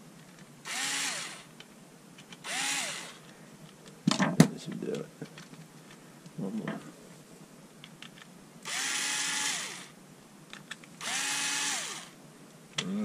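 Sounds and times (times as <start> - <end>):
cordless drill motor spinning: 0.7 - 1.5, 2.4 - 3.2, 8.6 - 10.0, 11.0 - 12.2.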